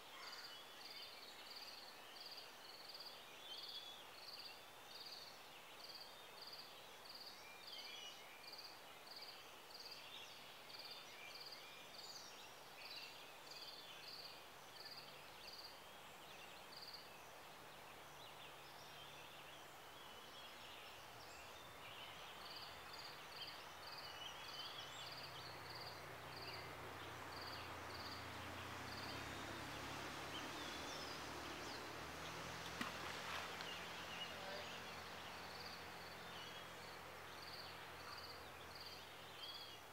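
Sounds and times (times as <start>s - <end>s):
small birds singing: 0.0s - 39.9s
low steady hum: 22.3s - 39.7s.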